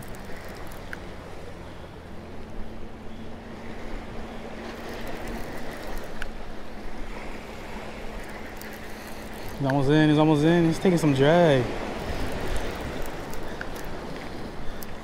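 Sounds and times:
waves washing against rocks: 0:04.9 - 0:15.0.

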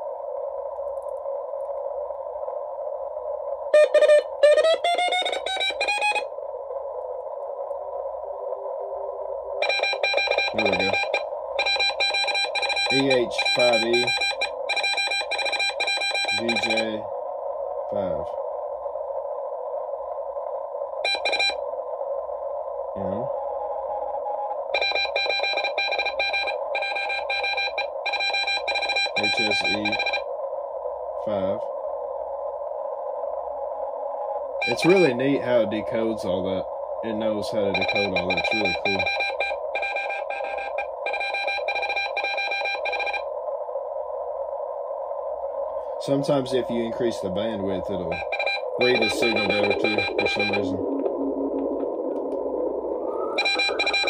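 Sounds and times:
radio band hiss: 0:00.0 - 0:54.0
morse code tones: 0:03.8 - 0:06.3, 0:09.6 - 0:17.0, 0:21.0 - 0:21.6, 0:24.8 - 0:30.2, 0:34.6 - 0:35.1, 0:37.6 - 0:43.3, 0:48.1 - 0:51.9, 0:53.1 - 0:54.0.

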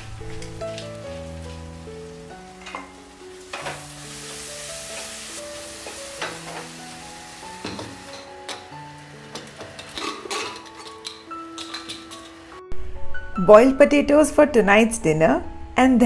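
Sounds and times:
food sizzling in a pan: 0:00.0 - 0:12.6
soft background music: 0:00.0 - 0:16.0.

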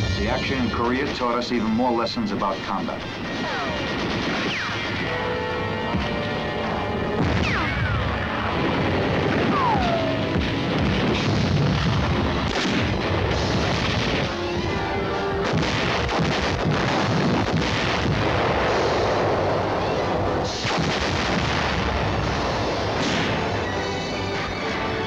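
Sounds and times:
background music: 0:00.0 - 0:25.0
continuous rumbling: 0:00.0 - 0:25.0
artillery booms: 0:07.1 - 0:14.4, 0:15.4 - 0:24.1.

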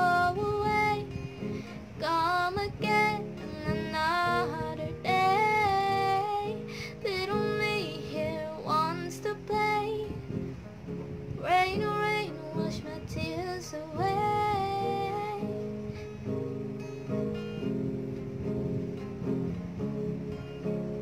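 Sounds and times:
woman singing: 0:00.0 - 0:10.4, 0:11.3 - 0:15.9
acoustic guitar chords: 0:00.0 - 0:21.0.

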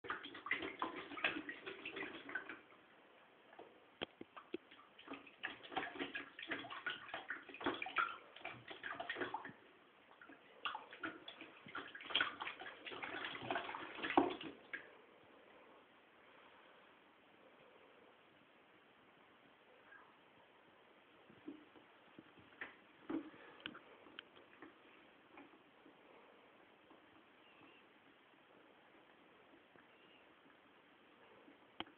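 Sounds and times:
cat splashing water in a tub: 0:00.0 - 0:02.9, 0:03.5 - 0:15.0.

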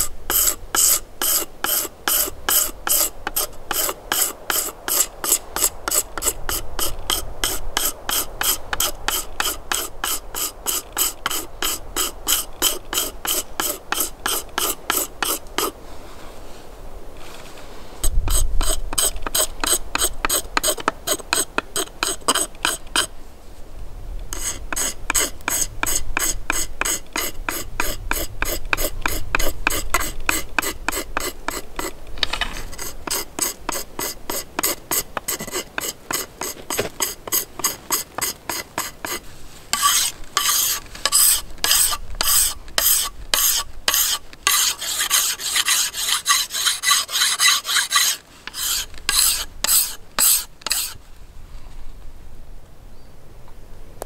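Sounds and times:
hand tool scraping wood: 0:00.0 - 0:15.8, 0:17.2 - 0:23.1, 0:24.3 - 0:51.0.

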